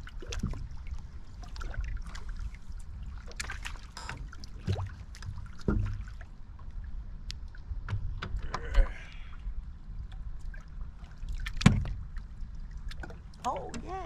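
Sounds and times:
water lapping against hull: 0.0s - 14.0s.

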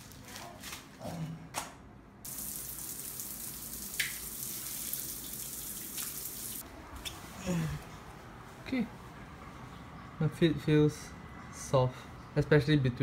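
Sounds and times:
shower water on tiled floor: 2.3s - 6.6s.

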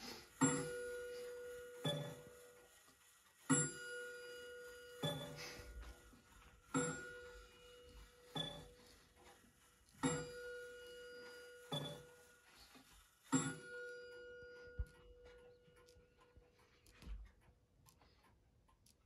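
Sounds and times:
pendulum clock striking: 0.0s - 2.6s, 3.4s - 9.4s, 10.0s - 12.4s, 13.3s - 16.4s.

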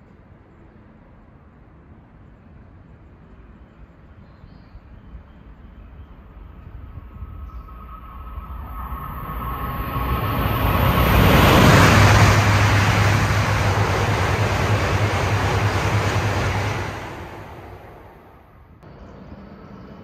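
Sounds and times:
high-speed train passing: 5.1s - 20.0s.

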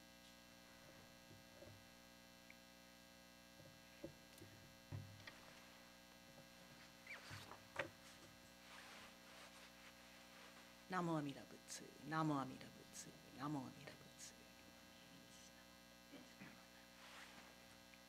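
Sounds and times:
steady electrical hum: 0.0s - 18.0s.

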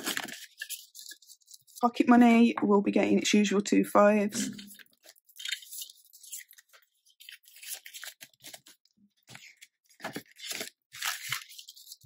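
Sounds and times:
banknotes and envelopes rustling: 0.0s - 2.2s, 4.5s - 12.0s.

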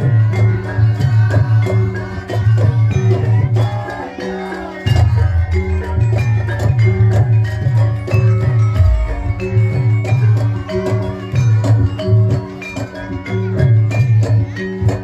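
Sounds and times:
metallophones ringing: 1.7s - 15.0s
drum strokes: 4.8s - 12.8s
pulsing deep bass tone: 8.7s - 10.6s.

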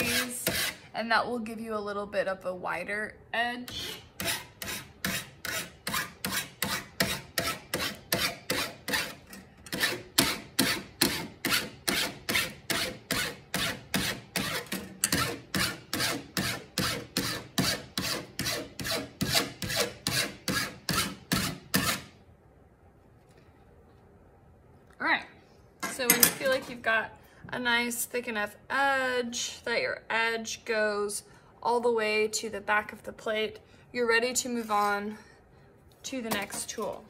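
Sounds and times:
metal file rasping on copper: 0.0s - 0.8s, 3.7s - 22.0s.

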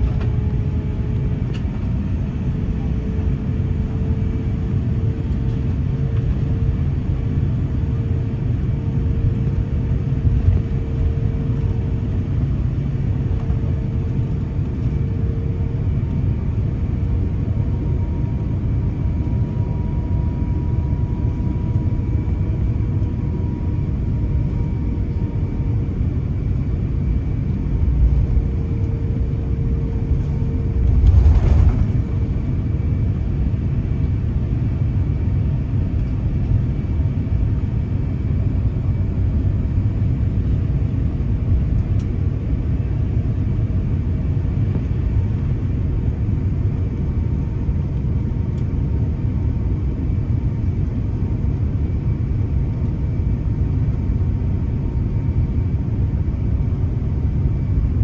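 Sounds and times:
aircraft cabin low rumble: 0.0s - 58.0s
faint jet engine hum: 0.0s - 58.0s.

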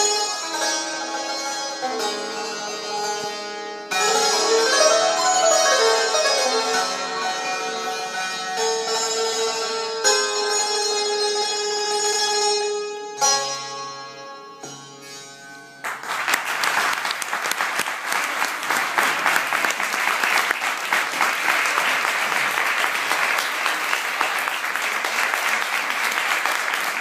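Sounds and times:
santoor notes ringing: 0.0s - 15.8s
audience applause: 15.8s - 27.0s.

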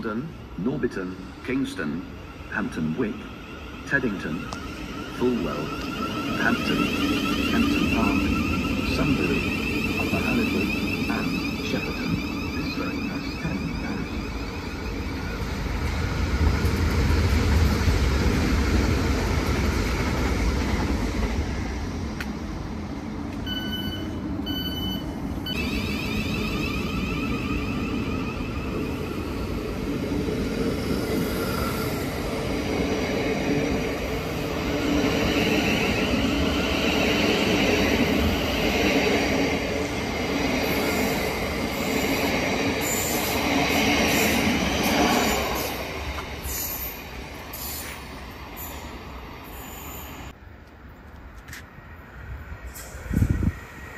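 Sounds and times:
train wheels squealing on rails: 0.0s - 17.9s, 23.4s - 50.4s, 52.5s - 53.9s
electric train rumbling: 0.0s - 53.9s
short beeps: 23.4s - 29.2s.

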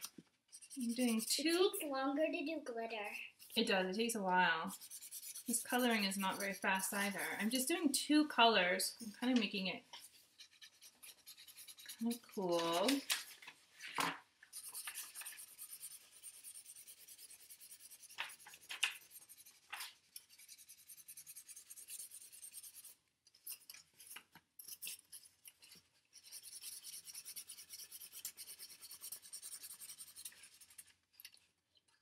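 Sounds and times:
marker scribbling on cardboard: 0.5s - 1.8s, 4.7s - 7.8s, 10.3s - 13.0s, 14.5s - 25.3s, 26.1s - 30.9s.

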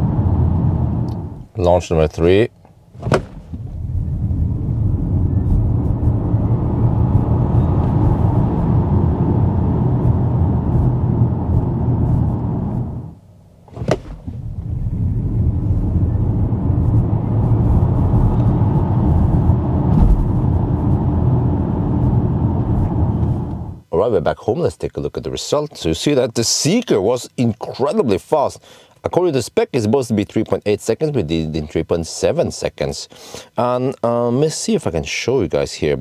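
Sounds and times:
tyre and road noise in car cabin: 2.6s - 23.8s.

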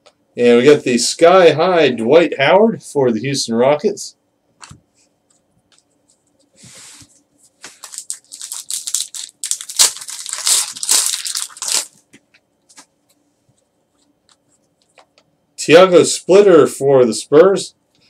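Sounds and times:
plastic wrapper crinkling: 7.6s - 12.8s.

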